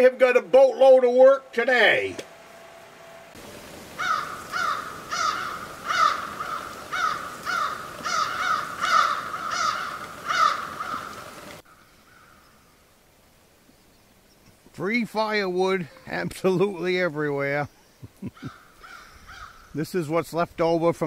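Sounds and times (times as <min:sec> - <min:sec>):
crow cawing: 0:03.9 - 0:12.5, 0:18.4 - 0:19.7.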